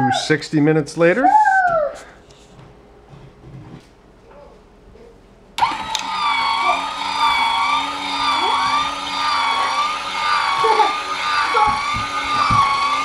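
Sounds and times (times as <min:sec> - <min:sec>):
electric gear motor whining: 0:05.6 - 0:13.0.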